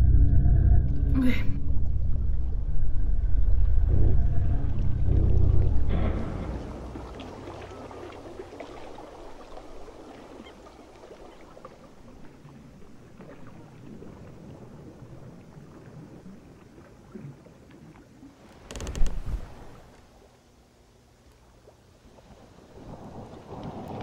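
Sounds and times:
low rumbling wash of noise: 0.0 - 8.6
loud crash: 4.6 - 7.6.

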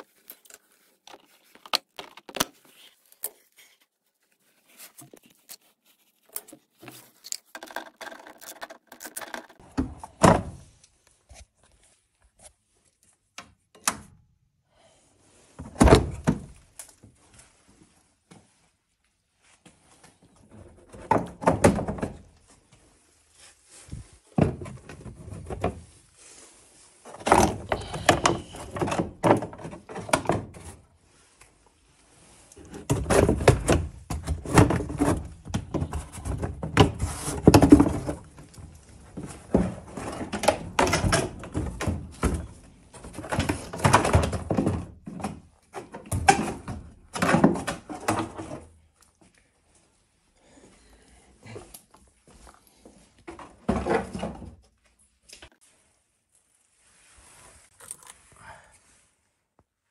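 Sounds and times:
plastic liner flexing and rubbing: 0.0 - 9.7.

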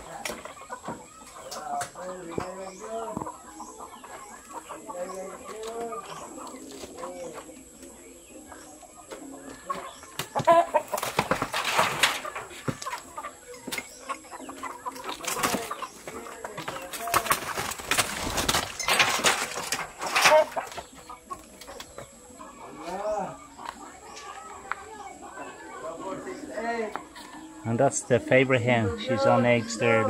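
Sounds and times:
chickens clucking: 0.0 - 30.0
rustling scuffle: 10.4 - 13.1, 15.0 - 21.1.

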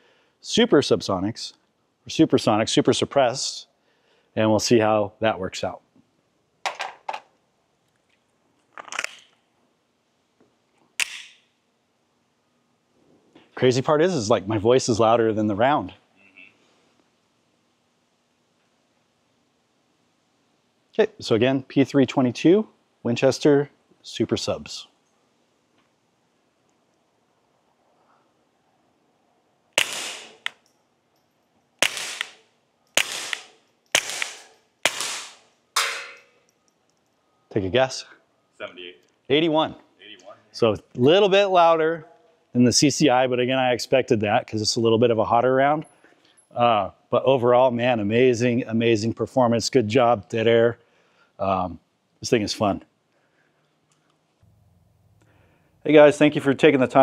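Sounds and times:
suppressed pistol shots: 11.0 - 11.4, 29.8 - 30.6, 31.8 - 32.4, 33.0 - 36.3.

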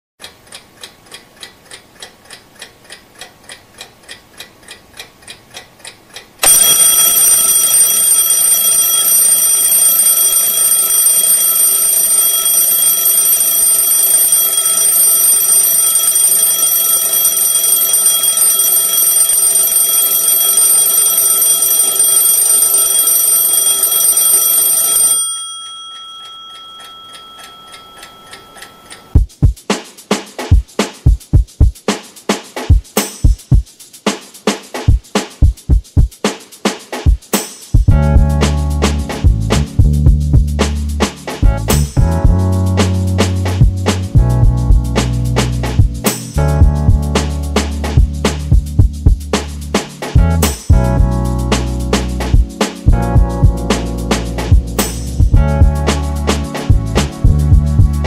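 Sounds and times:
clock ticking: 0.2 - 29.7
alarm clock ringing: 6.4 - 29.2.

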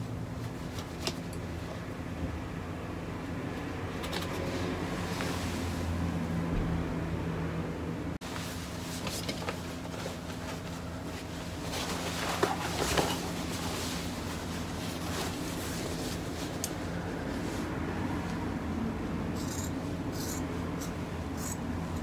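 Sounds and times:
steady low hum: 5.5 - 22.0
fabric rustling: 8.2 - 17.7.

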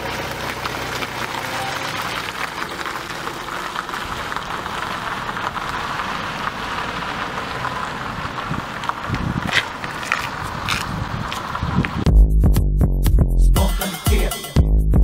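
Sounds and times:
steady rain: 0.0 - 12.0.

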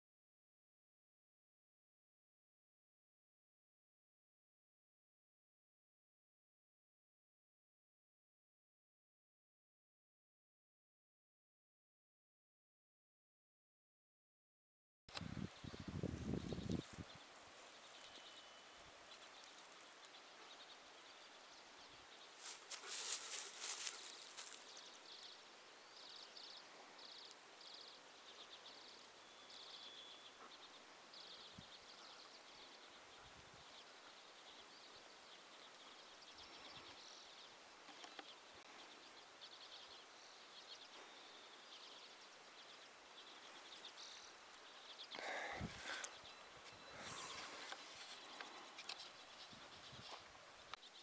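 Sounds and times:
small birds chirping: 15.1 - 51.0
rustling: 22.4 - 25.0.

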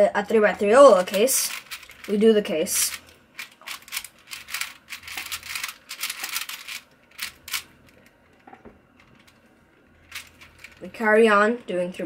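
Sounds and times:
plastic puzzle cube layers clicking: 2.8 - 8.0.

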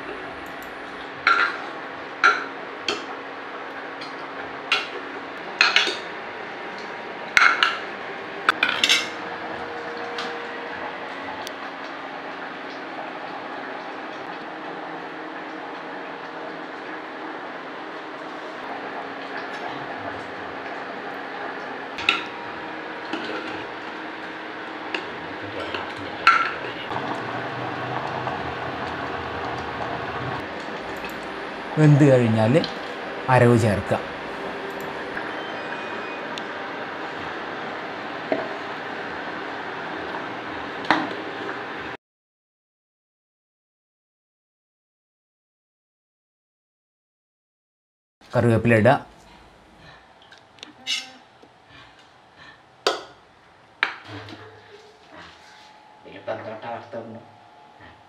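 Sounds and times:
steady low hum: 0.0 - 3.7, 13.6 - 42.0, 48.4 - 58.0.

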